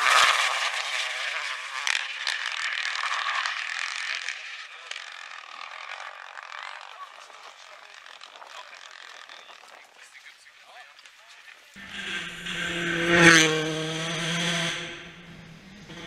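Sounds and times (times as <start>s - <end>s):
car engine driving away: 0.0s - 8.1s, 11.8s - 16.0s
tyres on gravel: 0.0s - 16.0s.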